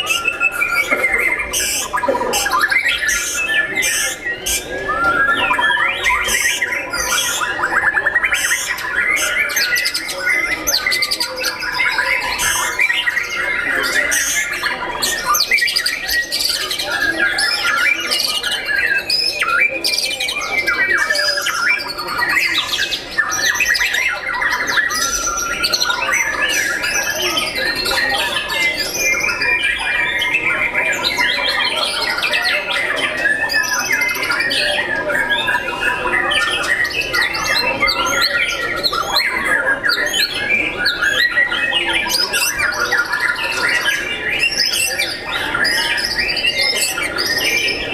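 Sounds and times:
songbirds chorus singing: 0:00.0 - 0:47.9.

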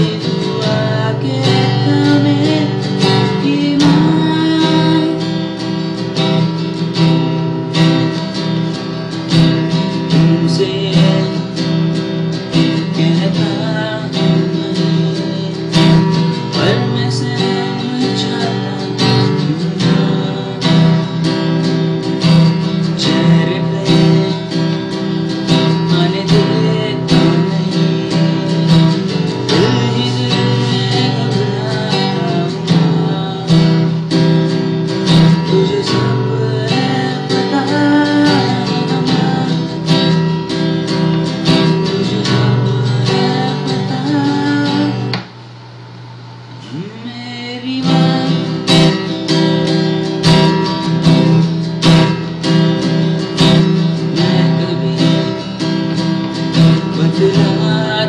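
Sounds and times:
acoustic guitar strumming: 0:00.0 - 0:58.0.

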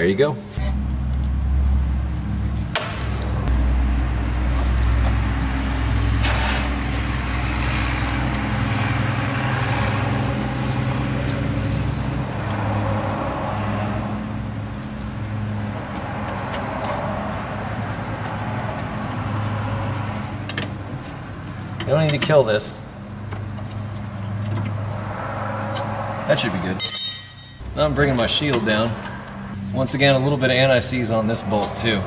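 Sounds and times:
machine rumbling: 0:00.6 - 0:21.8.

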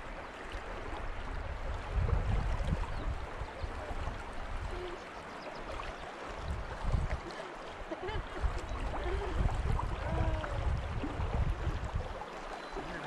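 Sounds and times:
wind rumble on microphone: 0:00.0 - 0:05.0, 0:05.6 - 0:13.0
river current rushing: 0:03.1 - 0:13.0.

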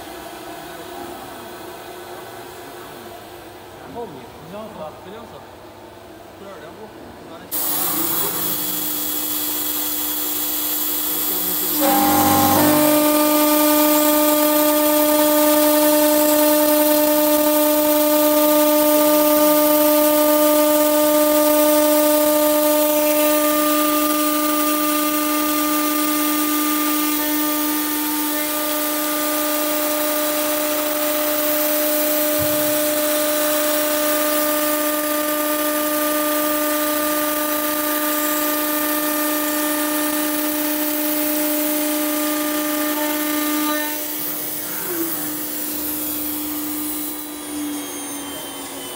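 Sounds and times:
cutting hiss: 0:07.5 - 0:36.4
machine spindle whining: 0:07.6 - 0:48.9.

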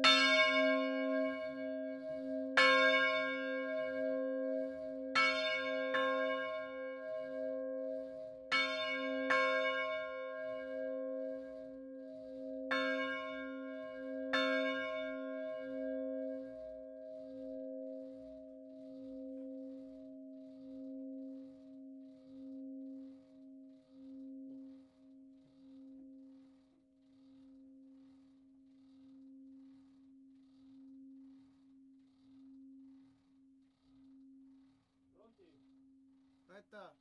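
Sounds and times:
church bell humming: 0:00.0 - 0:20.0.

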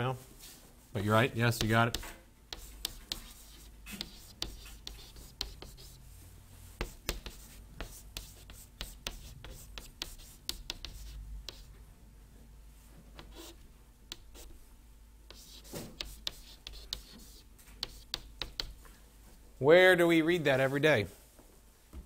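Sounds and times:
faint low hum: 0:00.0 - 0:22.0
chalk writing on chalkboard: 0:01.6 - 0:06.0, 0:06.8 - 0:11.7, 0:13.2 - 0:14.6, 0:15.3 - 0:18.8.

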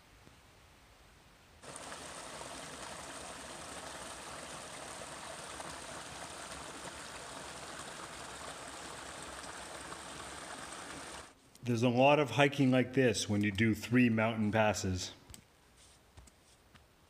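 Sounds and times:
brook trickling over rocks: 0:01.6 - 0:11.4.

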